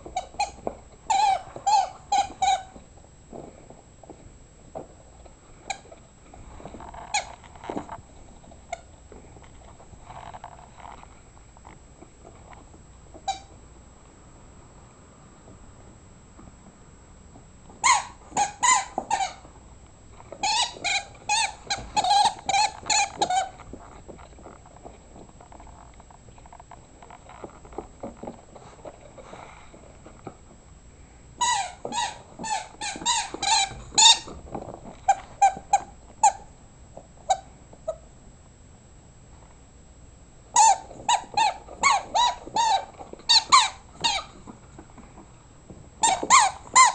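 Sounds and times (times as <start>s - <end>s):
rubber dog toy squeaking: 0.0s - 2.8s, 6.9s - 7.8s, 13.1s - 13.6s, 17.8s - 19.5s, 20.3s - 23.7s, 31.4s - 34.4s, 35.0s - 36.5s, 37.2s - 38.1s, 40.5s - 44.6s, 46.0s - 46.9s
dog chewing: 17.9s - 30.6s, 31.4s - 38.0s, 40.6s - 46.9s.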